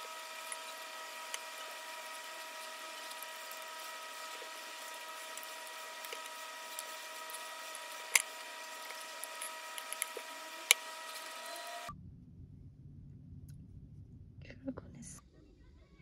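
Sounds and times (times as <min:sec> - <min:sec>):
steady hum and hiss: 0:00.0 - 0:11.9
low rumble inside car: 0:11.9 - 0:16.0.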